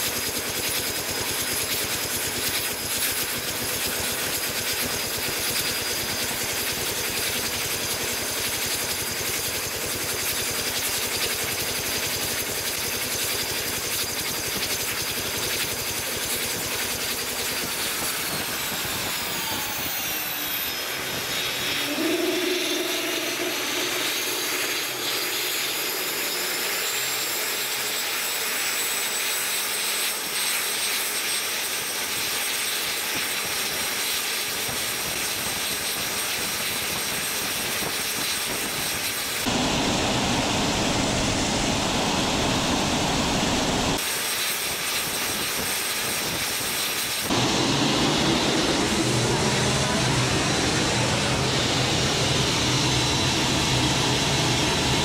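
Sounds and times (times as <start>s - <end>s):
turboshaft engine roar and whine: 0.0s - 55.0s
low tone: 21.6s - 24.7s.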